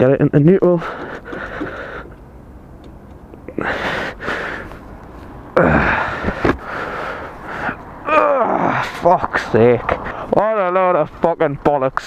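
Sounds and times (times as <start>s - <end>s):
person breathing heavily: 0.8s - 2.2s, 3.5s - 4.9s, 5.6s - 8.0s, 10.0s - 10.4s
person groaning sigh: 5.6s - 6.2s, 8.1s - 8.9s.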